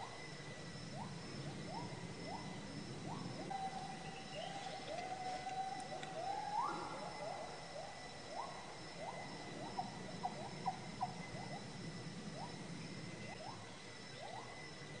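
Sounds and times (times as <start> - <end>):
faint high hum: 0.0 - 15.0
animal whistled calls: 1.0 - 11.7.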